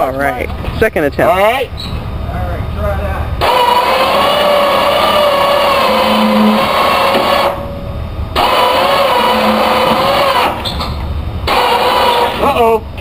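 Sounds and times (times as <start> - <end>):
motor whining under load: 3.4 - 12.8.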